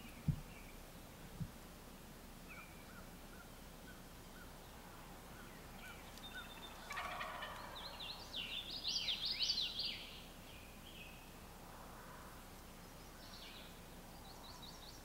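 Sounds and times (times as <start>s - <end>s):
turkey gobbling: 5.8s - 8.0s.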